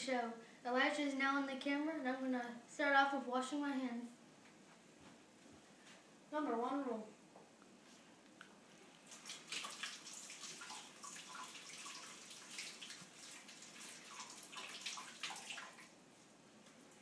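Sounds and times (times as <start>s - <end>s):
hands washing under water: 9.0s - 16.0s
tap water splashing: 9.1s - 15.9s.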